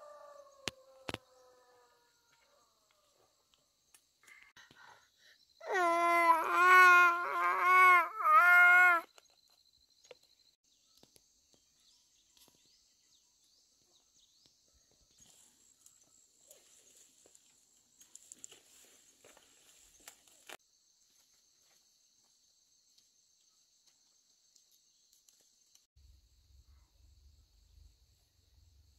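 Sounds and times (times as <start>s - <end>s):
branches cracking: 16.5s - 20.6s.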